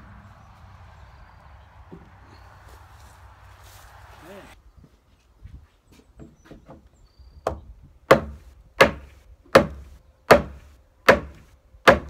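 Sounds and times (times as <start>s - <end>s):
heavy blows on wooden timber: 6.2s - 12.0s.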